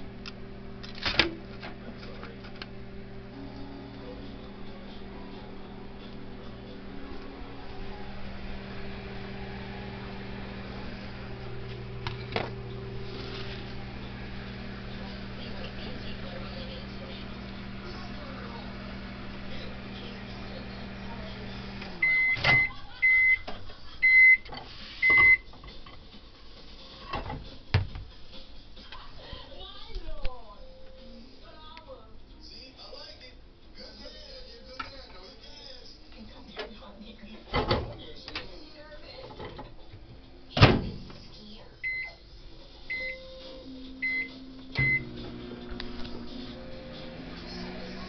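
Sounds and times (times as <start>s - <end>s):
microwave oven beeping: 2.5s - 25.5s, 41.8s - 42.2s, 42.9s - 48.0s.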